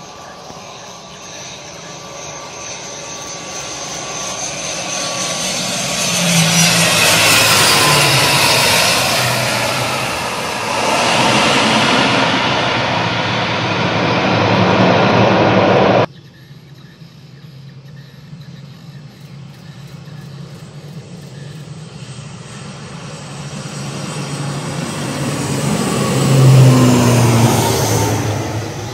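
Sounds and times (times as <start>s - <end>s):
turboprop airliner landing: 0.0s - 16.1s, 18.2s - 28.9s
engine whine falling in pitch: 1.6s - 16.1s.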